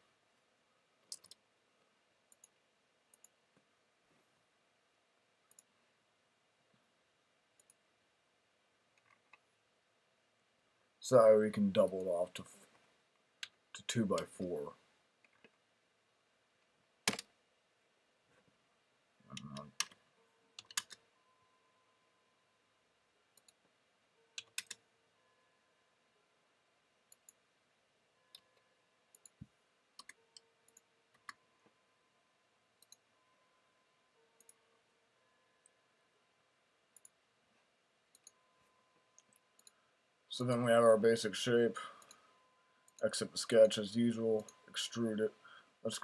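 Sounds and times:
computer mouse clicks: 1.0 - 1.4, 2.3 - 3.4, 5.5 - 5.7, 7.6 - 7.8, 17.1 - 17.3, 20.6 - 21.0, 23.4 - 23.6, 24.4 - 24.8, 27.1 - 27.4, 29.1 - 31.4, 32.8 - 33.0, 37.0 - 37.2, 38.1 - 38.4, 39.2 - 39.8.

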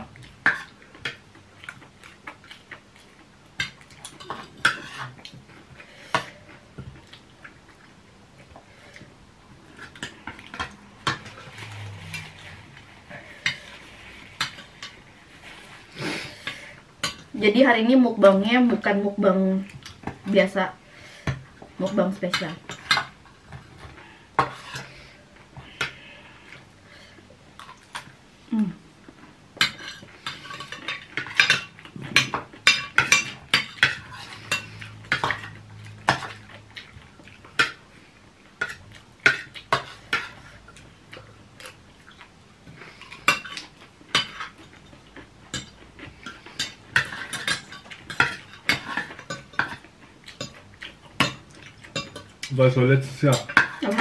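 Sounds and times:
cutlery clinking on plates: 45.6 - 52.3.

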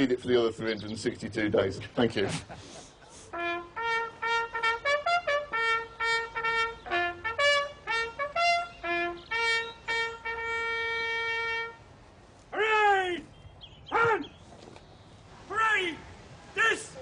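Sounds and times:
bugle call: 3.3 - 11.9.

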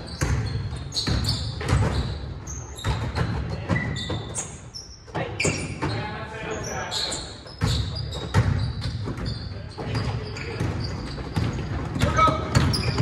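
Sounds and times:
basketball bouncing on wooden floor: 0.0 - 4.4, 7.5 - 13.0
sneaker squeaks: 0.0 - 13.0.

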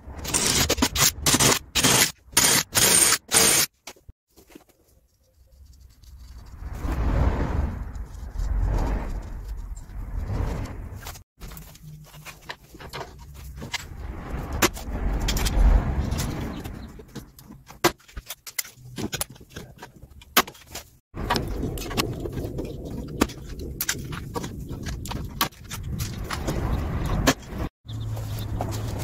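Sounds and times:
hand rivet gun riveting: 0.3 - 3.7.

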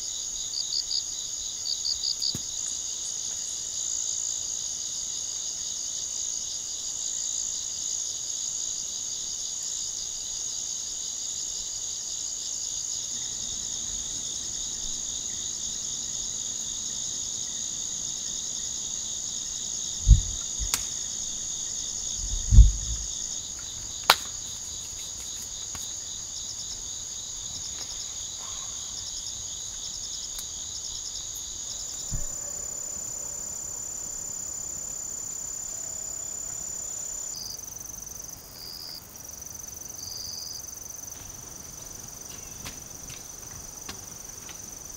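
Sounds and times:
crickets and insects chirring: 0.0 - 44.9
low thumps: 20.0 - 20.8, 22.2 - 23.2, 32.0 - 35.6.

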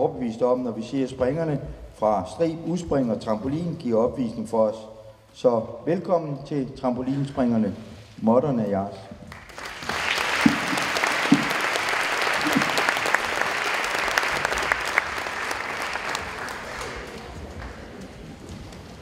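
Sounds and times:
audience applauding: 9.3 - 18.4.

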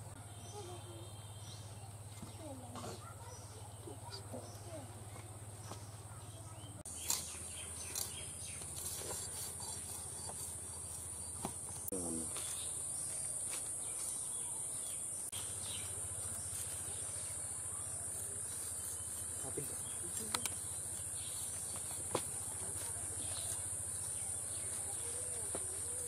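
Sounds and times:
insects chirring: 6.9 - 26.0.

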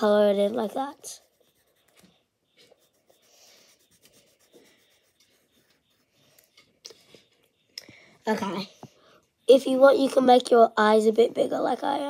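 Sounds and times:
pencil scratching on paper: 0.0 - 6.8.

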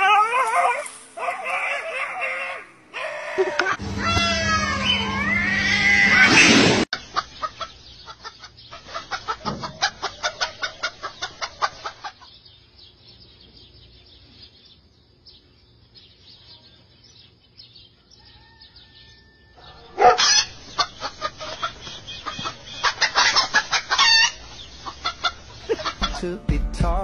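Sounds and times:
cat yowling: 0.0 - 6.3
hen clucking: 7.0 - 12.4, 19.6 - 26.4.

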